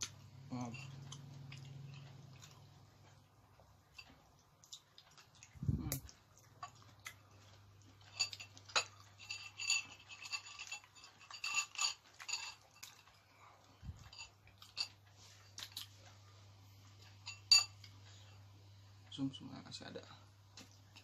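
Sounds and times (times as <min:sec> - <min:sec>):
chewing on bone: 0:00.0 - 0:16.3
low steady hum: 0:00.0 - 0:21.0
metal spoon clinking on dishes: 0:07.9 - 0:13.2, 0:17.0 - 0:17.9.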